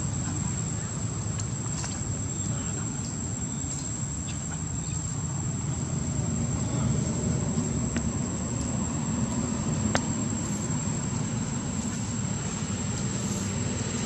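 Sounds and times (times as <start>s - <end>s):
insect high-pitched drone: 0.0s - 14.0s
low rumble: 4.9s - 14.0s.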